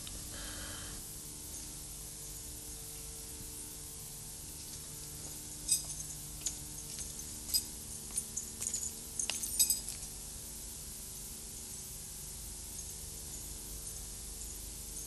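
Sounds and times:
faint steady hum: 0.0 - 15.0
light clinks of glass or metal: 5.6 - 10.2.

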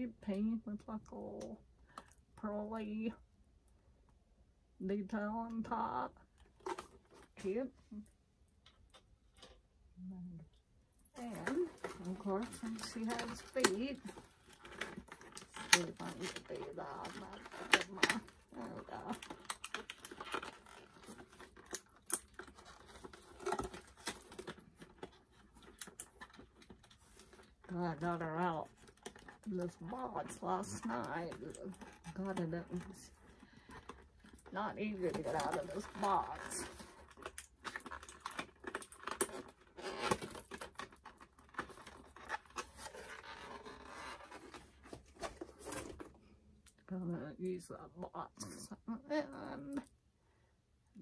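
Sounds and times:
plastic packaging crinkling: 11.2 - 46.3
cardboard box handling noise: 28.4 - 46.3.

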